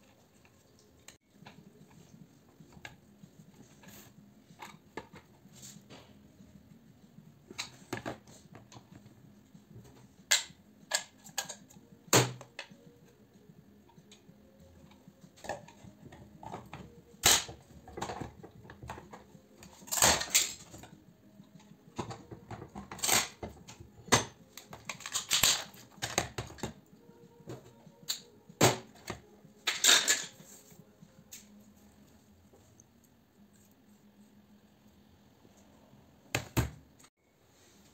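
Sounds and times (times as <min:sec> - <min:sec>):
metal parts clicking and knocking: 0:29.6 - 0:30.4
metal parts clattering: 0:29.7 - 0:30.4.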